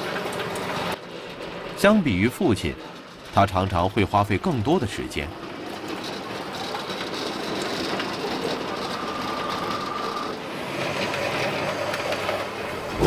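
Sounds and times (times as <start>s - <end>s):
electric machine whirring: 4.4s - 13.0s
thin whine: 7.9s - 10.4s.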